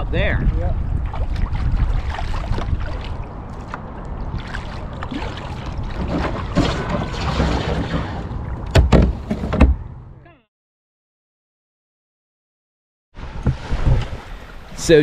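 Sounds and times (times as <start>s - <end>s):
wind on microphone: 0.0s - 8.7s, 13.2s - 14.9s
paddle strokes splashing: 1.0s - 8.6s
sharp knocks: 8.7s - 9.8s.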